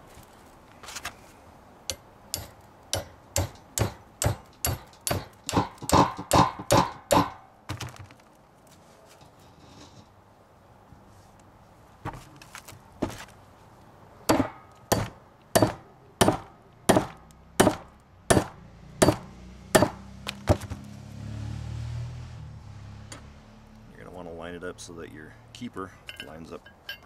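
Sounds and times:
hammer tapping metal: 1.9s - 7.4s, 14.3s - 19.2s, 26.1s - 27.0s.

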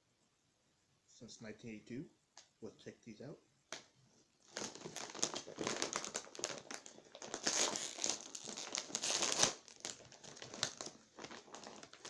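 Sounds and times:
chip bag crinkling: 4.4s - 12.0s.

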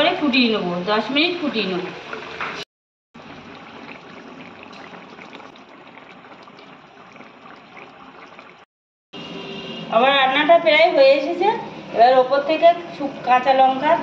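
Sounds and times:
curry gravy bubbling in a pan: 3.2s - 8.7s.

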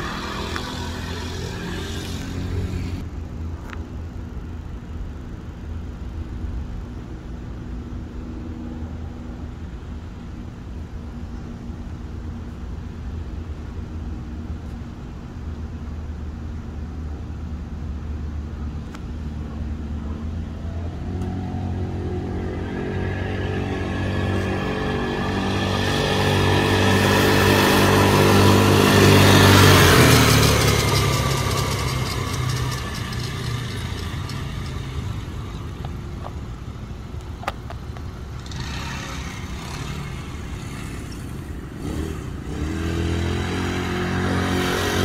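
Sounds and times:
quad bike engine running: 0.0s - 3.1s, 18.4s - 45.0s.

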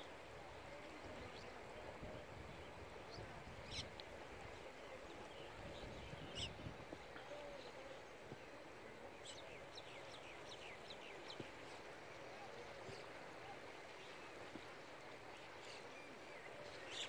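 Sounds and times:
faint outdoor rush: 0.0s - 17.0s.

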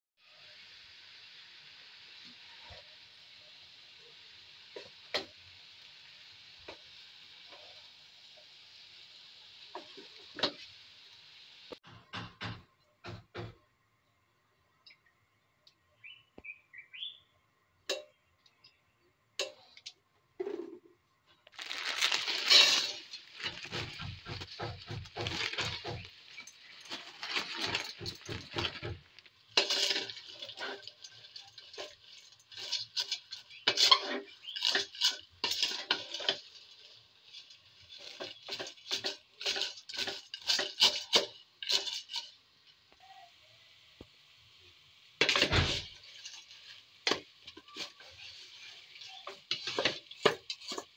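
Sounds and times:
dry pasta pattering into metal pot: 19.4s - 43.0s, 45.2s - 50.9s.

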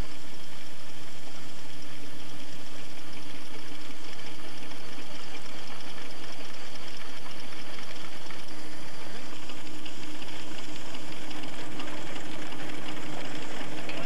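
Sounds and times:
steady machine hum: 0.0s - 14.0s
threshing machine clattering rush: 3.0s - 14.0s.

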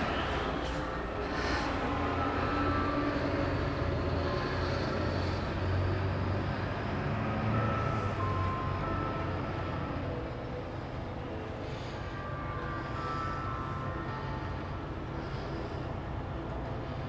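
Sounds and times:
steady low rumble: 0.0s - 7.0s
tower chimes playing a tune: 0.0s - 17.0s.

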